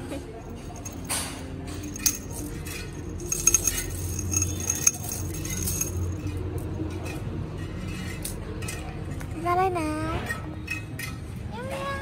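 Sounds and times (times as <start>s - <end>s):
metallic jingling and clinking: 0.2s - 9.2s.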